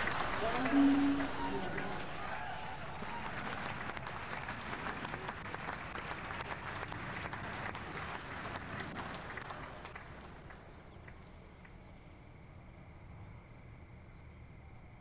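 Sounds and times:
crowd applauding: 0.0 - 11.3.

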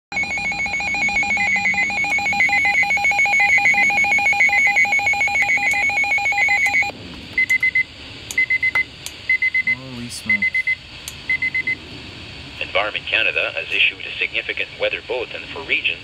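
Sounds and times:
rapid warbling electronic alarm: 0.1 - 6.9.

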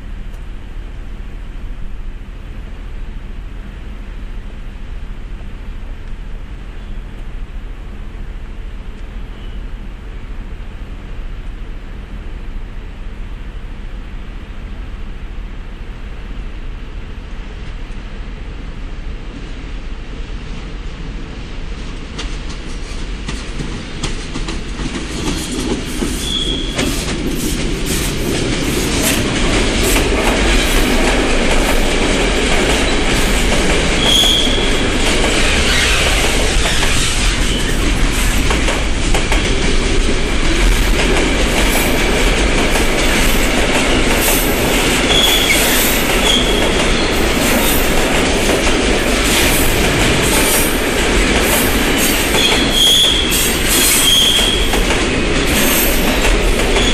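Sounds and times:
freight train wagons rumbling: 13.4 - 56.9
rail-joint clicks: 21.9 - 56.9
high wheel squeals: 26.2 - 26.8, 34.0 - 37.8, 45.1 - 47.2, 52.4 - 54.8.

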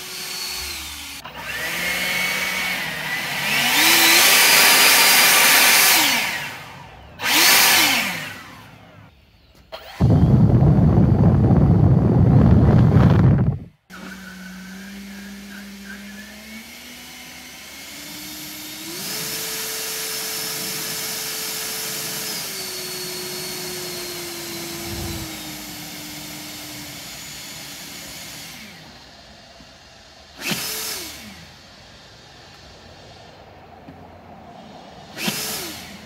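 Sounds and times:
leaf blower motor whining: 0.0 - 36.0
rushing air: 9.9 - 14.2, 24.0 - 27.4, 31.8 - 36.0.

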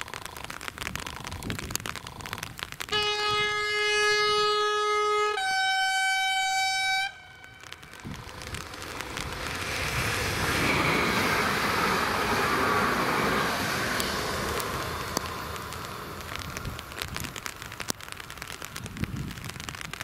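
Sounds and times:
two-tone train horn: 2.9 - 7.8
train wheels on rails: 7.0 - 19.9.

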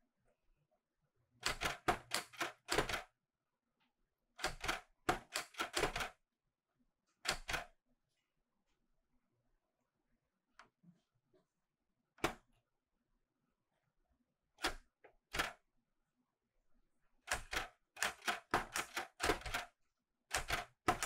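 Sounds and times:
typewriter keys clacking: 17.3 - 19.7, 20.3 - 21.0.

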